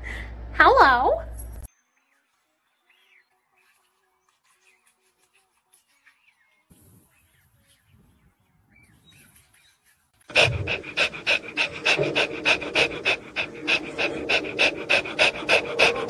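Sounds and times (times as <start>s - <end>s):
puppy panting: 10.3s - 16.0s.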